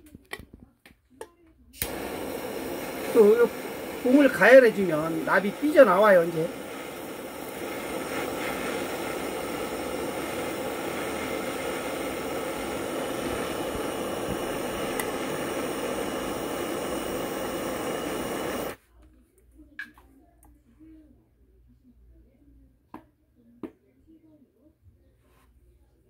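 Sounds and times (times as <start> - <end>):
gas torch flame hissing: 1.8 - 18.8.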